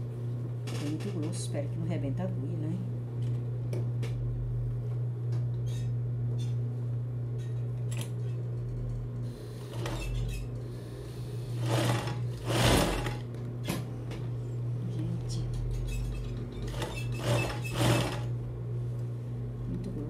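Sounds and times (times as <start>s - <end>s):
sewing machine stitching: 9.7s - 10.4s, 11.6s - 13.2s, 16.6s - 18.3s.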